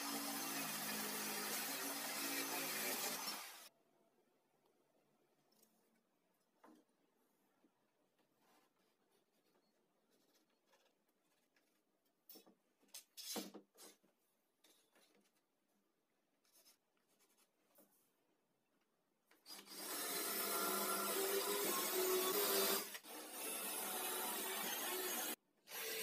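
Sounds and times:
cordless drill into wood: 0:19.5 - 0:26.0.

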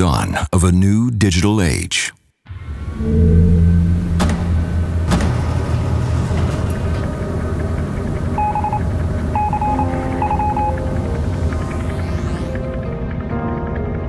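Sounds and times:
low rumble: 0:02.5 - 0:14.0
quick electronic beeps: 0:09.4 - 0:10.8.

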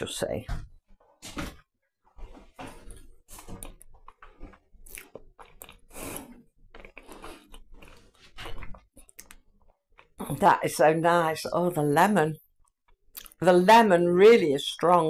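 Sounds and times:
person chewing: 0:03.3 - 0:10.2, 0:13.1 - 0:13.4.

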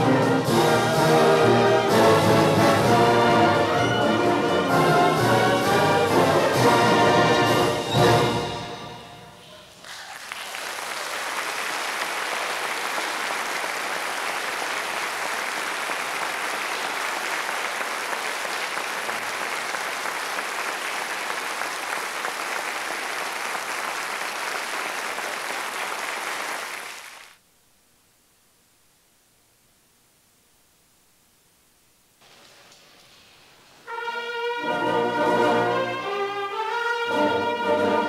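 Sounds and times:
audience applauding: 0:09.7 - 0:27.4.

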